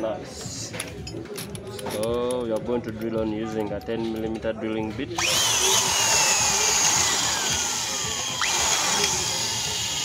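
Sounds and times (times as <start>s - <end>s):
electric drill boring into metal: 5.2s - 10.0s.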